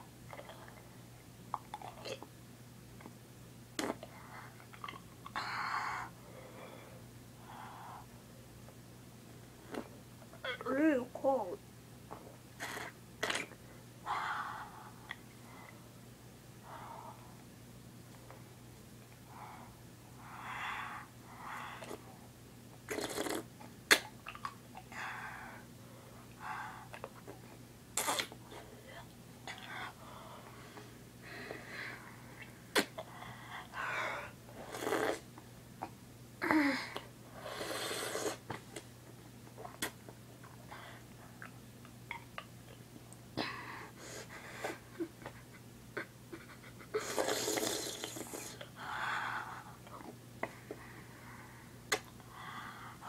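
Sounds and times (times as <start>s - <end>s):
mouth clicks: 51.9s - 52.2s.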